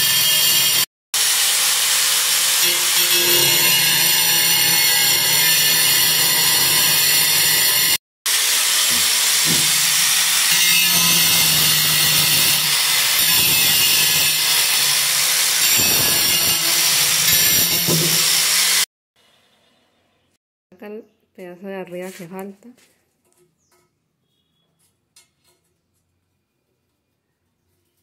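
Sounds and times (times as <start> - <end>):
angle grinder cutting tile: 0.0 - 18.9.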